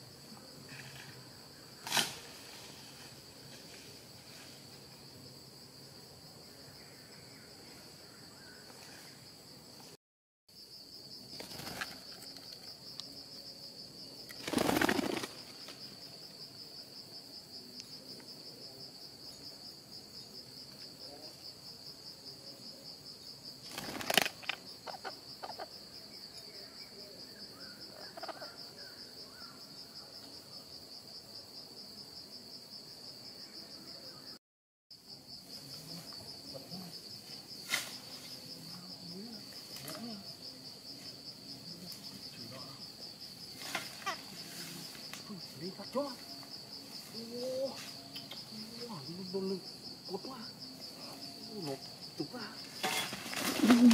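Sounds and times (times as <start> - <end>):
crickets trilling: 0.0 - 53.9
wings fluttering: 11.3 - 12.6, 14.3 - 15.9, 23.6 - 25.6, 52.8 - 53.9.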